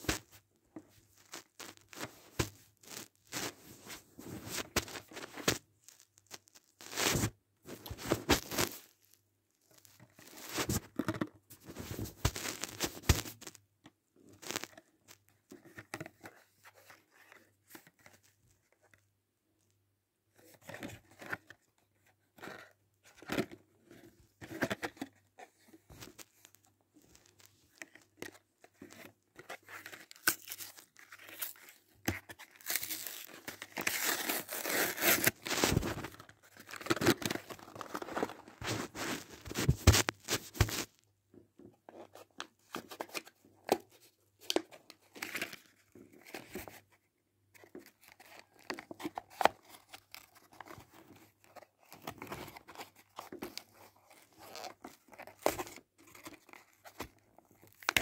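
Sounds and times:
packaging tearing and crinkling: 0:29.6 - 0:40.9.

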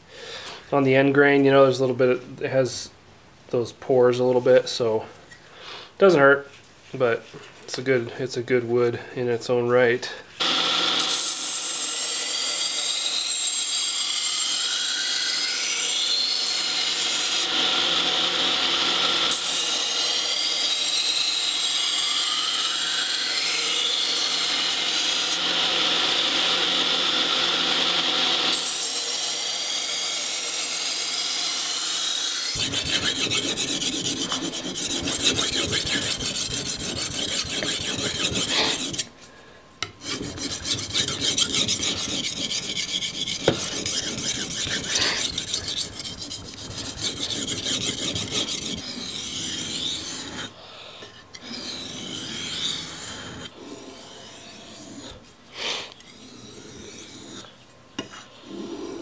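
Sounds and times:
belt grinder whining: 0:10.4 - 0:11.2
blade scraping on sharpening stone: 0:32.6 - 0:39.1, 0:39.9 - 0:55.2.

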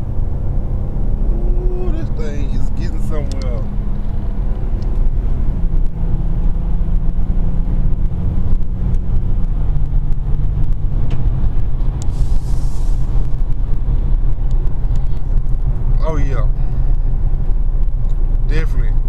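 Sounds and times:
car engine and road noise hum: 0:00.0 - 0:19.0
short hiss: 0:12.1 - 0:13.2.

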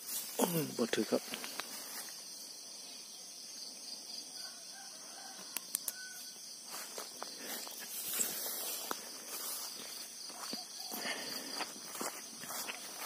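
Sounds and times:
footsteps through tall grass: 0:00.0 - 0:00.4, 0:01.0 - 0:02.4, 0:06.6 - 0:13.0
insect chirring: 0:00.0 - 0:13.0
rooster crowing faintly: 0:04.4 - 0:06.4.

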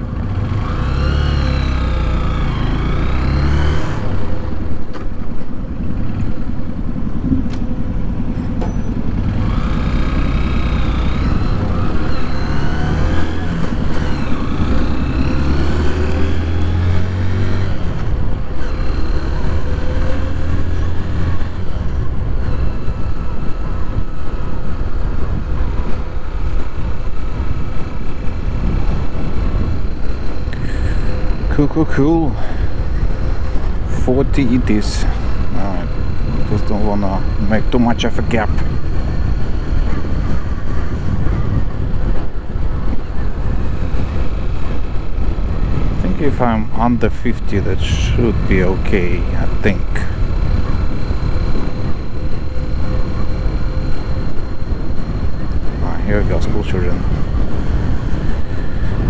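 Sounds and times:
motorcycle engine accelerating: 0:00.0 - 0:59.0
road and wind noise: 0:00.0 - 0:59.0.

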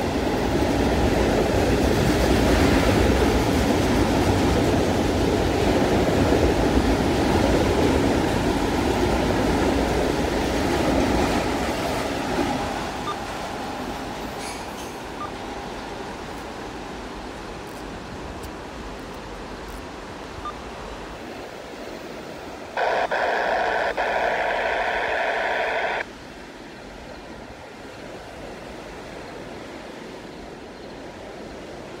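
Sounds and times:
freight train rolling: 0:00.0 - 0:20.2.

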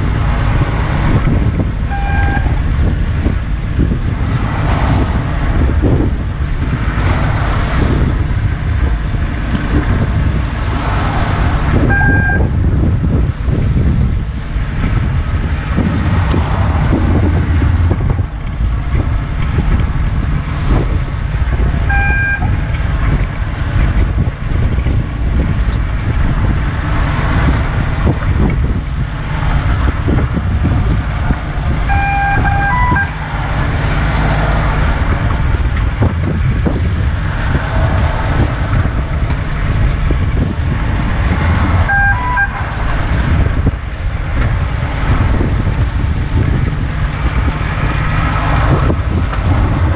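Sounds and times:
boat engine running: 0:00.0 - 0:49.9
wind buffeting microphone: 0:00.0 - 0:49.9
short electronic beep: 0:11.9 - 0:12.4, 0:21.9 - 0:22.5, 0:31.9 - 0:33.1, 0:41.9 - 0:42.6.

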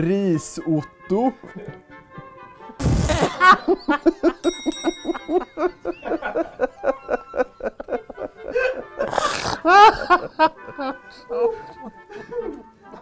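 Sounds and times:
men laughing hard: 0:02.8 - 0:13.0.

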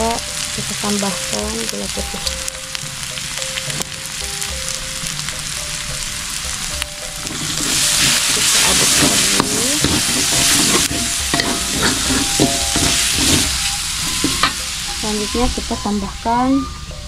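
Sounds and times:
paste sizzling in hot oil: 0:00.0 - 0:16.3
metal spatula scraping wok: 0:06.1 - 0:15.4.

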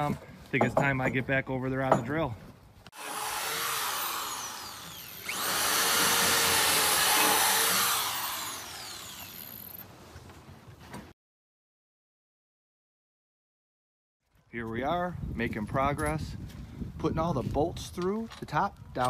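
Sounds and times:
electric drill boring into wood: 0:03.0 - 0:09.8.

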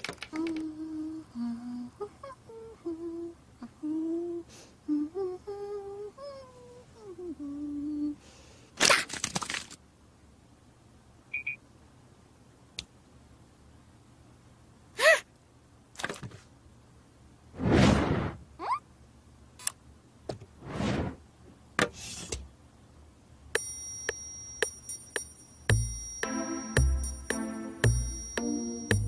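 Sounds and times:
clicks and rustles: 0:08.8 - 0:09.8
cartoon voice humming: 0:18.6 - 0:18.8.

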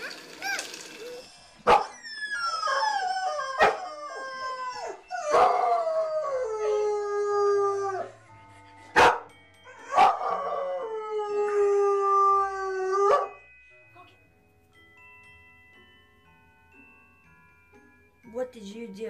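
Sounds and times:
dog howling: 0:00.5 - 0:08.2.

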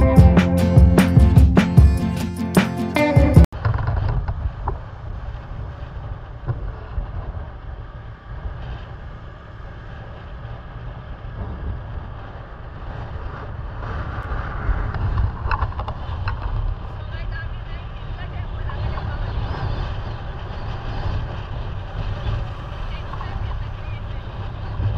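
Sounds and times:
guitar music: 0:00.0 - 0:03.5
motorcycle road noise: 0:00.0 - 0:24.9
wind rumbling on microphone: 0:03.5 - 0:24.9.

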